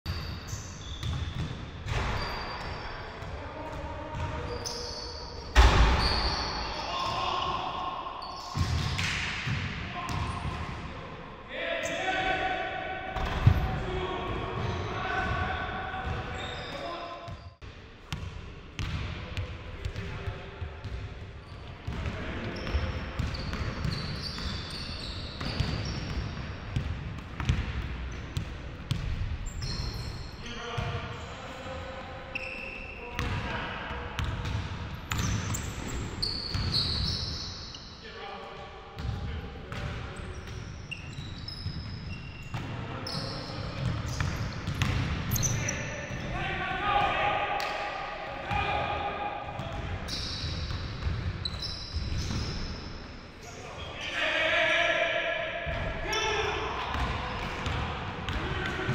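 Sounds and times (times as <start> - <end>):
basketballs bouncing on court: 0.1 - 2.6, 3.2 - 4.8, 8.5 - 10.9, 13.2 - 16.6, 18.1 - 30.1, 30.8 - 31.0, 33.2 - 33.6, 34.2 - 37.2, 39.0 - 46.3, 49.5 - 52.6, 55.6 - 56.1, 56.8 - 58.9
shoe squeaks: 0.1 - 3.2, 4.4 - 7.3, 8.2 - 8.9, 16.3 - 17.6, 22.6 - 26.3, 29.4 - 30.6, 32.3 - 33.2, 35.1 - 38.0, 40.2 - 46.2, 50.0 - 53.7
basketball bouncing: 18.1 - 19.0, 26.8 - 29.2, 43.8 - 45.2, 56.9 - 58.9.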